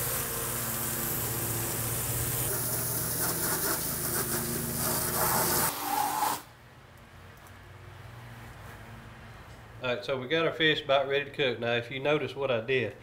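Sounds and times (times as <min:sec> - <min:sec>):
pressure washer spray hissing: 0:00.0 - 0:06.5.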